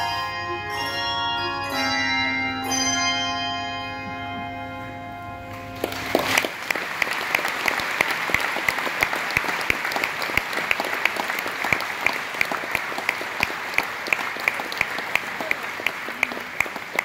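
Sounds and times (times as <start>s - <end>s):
audience applauding: 5.5s - 17.0s
person clapping close by: 5.8s - 17.0s.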